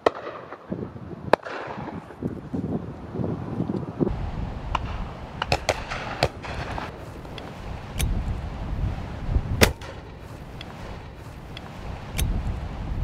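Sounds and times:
wind buffeting microphone: 0.1 - 13.0
shotgun shots: 4.7 - 7.0, 9.6 - 11.2.

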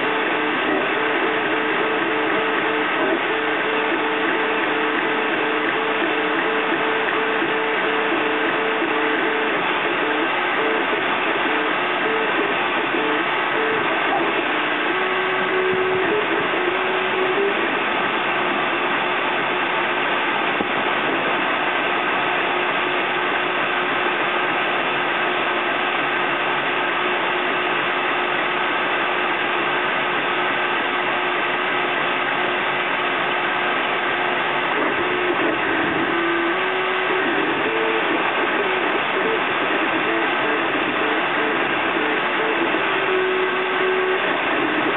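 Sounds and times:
mechanical whirr: 0.0 - 23.4, 33.4 - 44.9.

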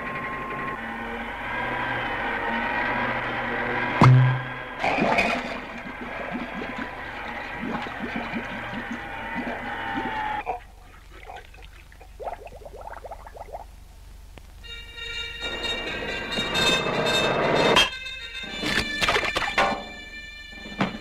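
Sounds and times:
cartoon water gurgling and bubbling: 4.8 - 13.7
quick faint bubbles: 4.8 - 13.7.

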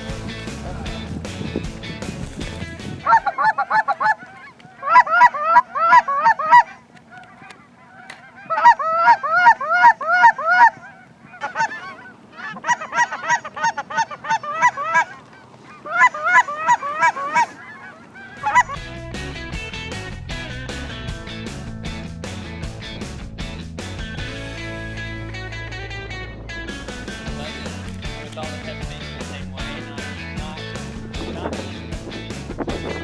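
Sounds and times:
guitar music: 0.0 - 3.2, 18.5 - 33.0
geese honking in flight: 2.6 - 20.5.

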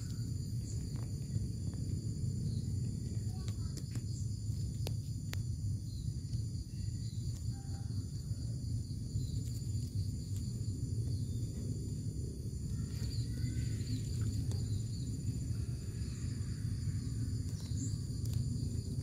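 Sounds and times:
insects trilling: 0.0 - 19.0
low background rumble: 0.0 - 19.0
faint bird chirps: 12.7 - 18.4.

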